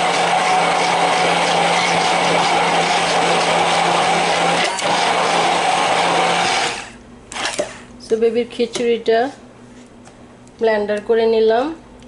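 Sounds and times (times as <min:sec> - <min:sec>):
hand blender motor hum: 0:00.0 - 0:07.8.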